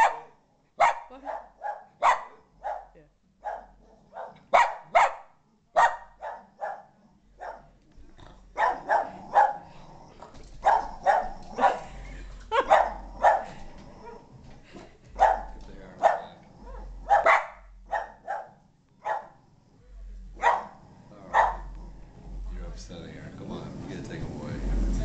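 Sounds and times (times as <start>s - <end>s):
dog barking sharply: 0.0s - 7.7s, 8.6s - 9.6s, 10.6s - 11.8s, 12.5s - 14.2s, 15.2s - 16.3s, 17.1s - 19.4s, 20.4s - 21.7s.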